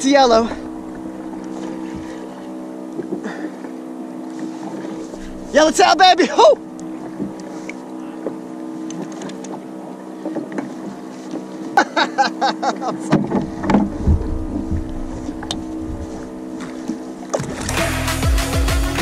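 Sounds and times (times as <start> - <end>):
wind rumble on microphone: 0.0 - 2.3, 13.2 - 17.7
boat engine idling: 0.0 - 19.0
man laughing: 6.2 - 6.6, 11.7 - 13.1.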